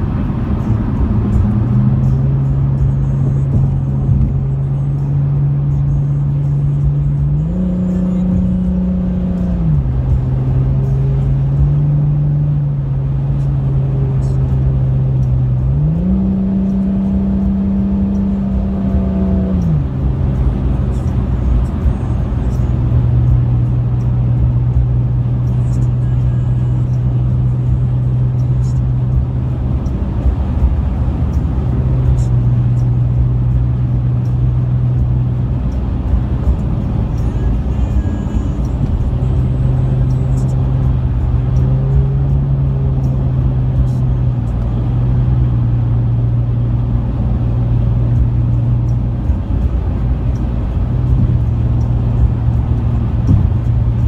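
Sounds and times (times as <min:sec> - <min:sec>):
car engine drone: 0:00.0 - 0:54.0
tyre and road rumble: 0:26.8 - 0:54.0.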